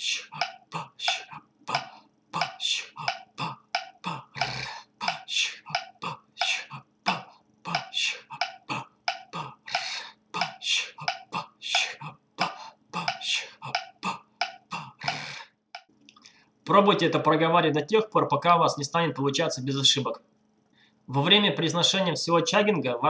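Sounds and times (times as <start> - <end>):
man making percussive mouth sounds: 0.0 - 15.9.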